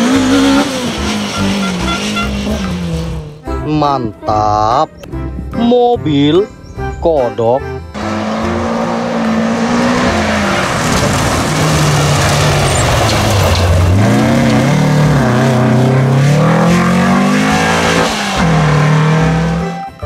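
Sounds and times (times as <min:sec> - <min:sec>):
rally car engine revving: 0:00.0 - 0:03.6, 0:07.9 - 0:20.0.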